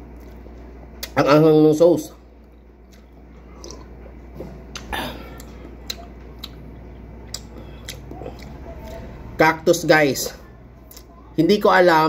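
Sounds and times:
steady low hum: 0:00.0 - 0:12.0
sipping and swallowing: 0:02.5 - 0:09.1.

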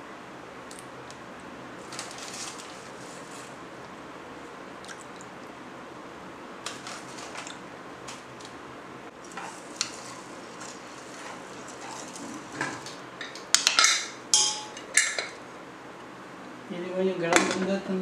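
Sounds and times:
steady low hiss: 0:00.0 - 0:18.0
spoon tapping metal pot: 0:13.2 - 0:15.3.

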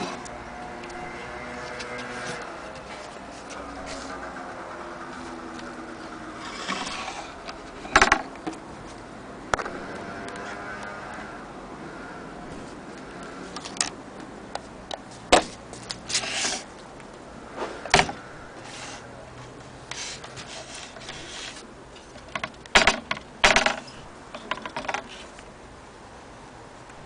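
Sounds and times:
rubbing and scraping: 0:01.0 - 0:08.2, 0:15.2 - 0:16.7, 0:19.9 - 0:22.3
clicks and knocks on wood: 0:07.5 - 0:08.6, 0:22.2 - 0:25.2.

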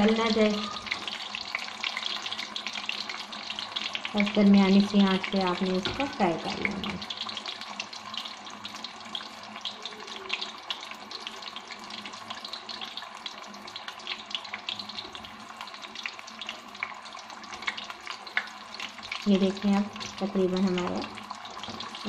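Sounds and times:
fish deep-frying with crackles: 0:00.0 - 0:22.0.

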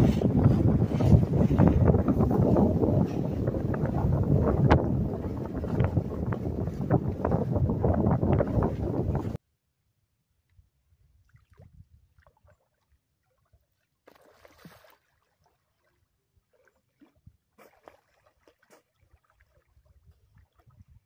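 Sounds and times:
small water splashes and gurgles: 0:11.2 - 0:21.0
splashy rushes of water: 0:14.1 - 0:20.8.

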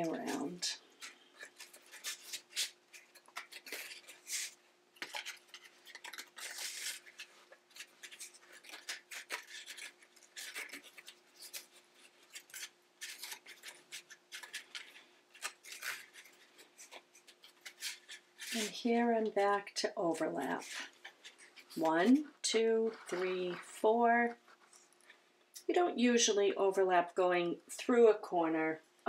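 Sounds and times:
rattan reed scraping and crackling: 0:00.0 - 0:19.5.

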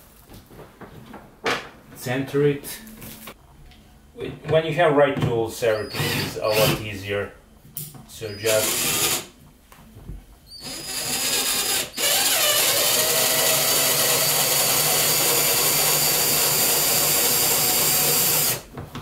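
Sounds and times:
cordless drill driving a screw: 0:05.8 - 0:06.8, 0:08.3 - 0:09.3, 0:10.6 - 0:18.6.

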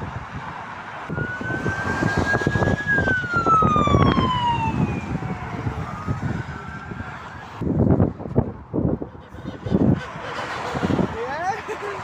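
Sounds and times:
motorway traffic passing: 0:00.0 - 0:12.0
ambulance siren wailing: 0:01.0 - 0:07.6.

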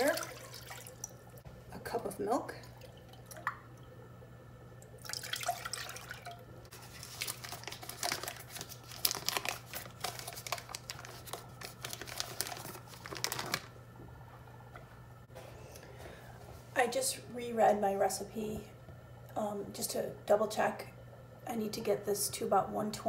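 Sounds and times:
paper wrapper crinkling and tearing: 0:06.7 - 0:13.8.

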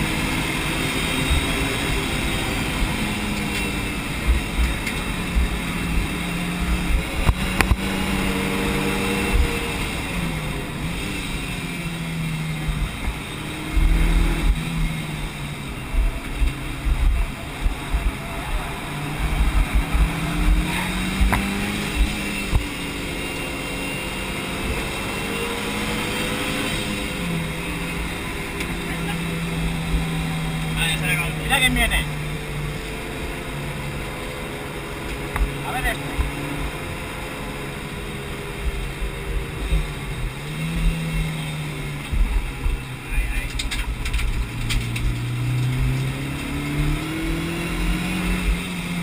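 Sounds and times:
car engine revving: 0:00.0 - 0:49.0
low thumps: 0:12.4 - 0:22.7.

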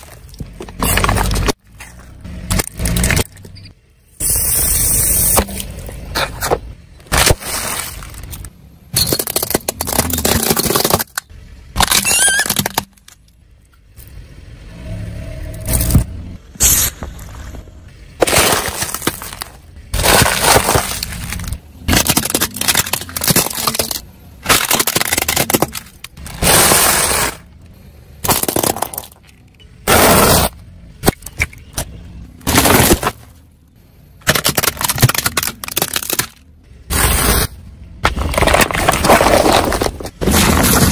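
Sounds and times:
tyre crushing objects: 0:00.0 - 0:03.4, 0:05.4 - 0:13.2, 0:18.2 - 0:27.5, 0:28.2 - 0:33.4, 0:34.2 - 0:40.9.

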